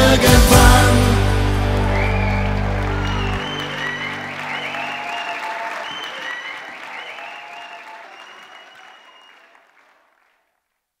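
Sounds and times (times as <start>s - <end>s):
audience applause: 0.9s - 10.6s
whistles: 1.8s - 9.7s.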